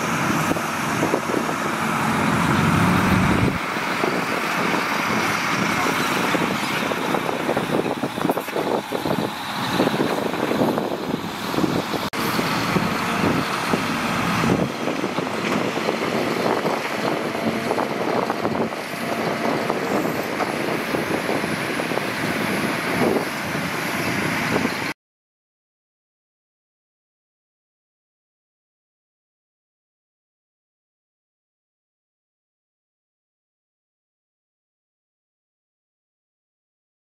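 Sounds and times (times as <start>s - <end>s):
dump truck diesel engines: 0.0s - 25.0s.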